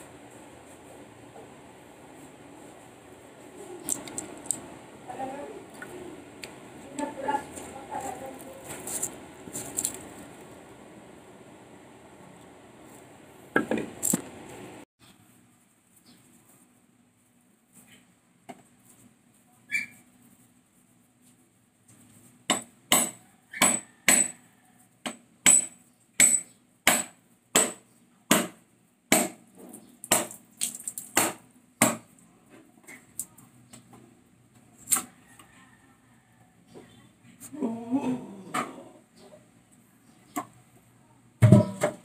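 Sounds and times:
knife knocking coconut shell: 22.5 - 24.4.

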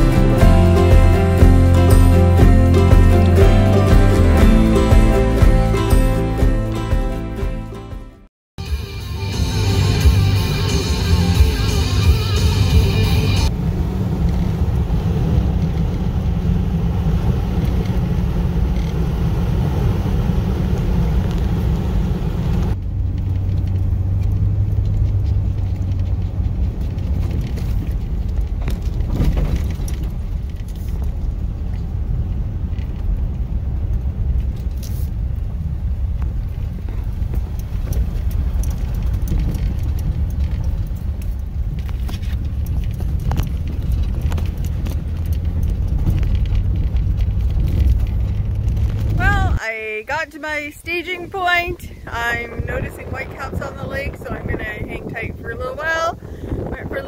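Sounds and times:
in-cabin road and engine rumble: 0.0 - 57.0
gravel ticks: 22.5 - 57.0.

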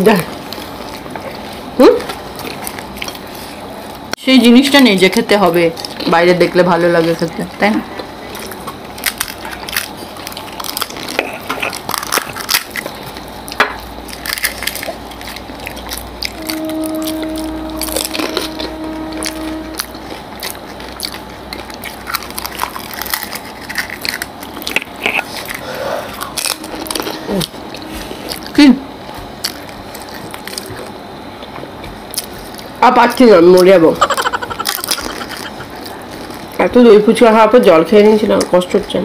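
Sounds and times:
crisp shells cracking and crunching: 8.4 - 28.6, 29.2 - 31.0
steady tone: 16.3 - 20.7, 26.2 - 29.0.

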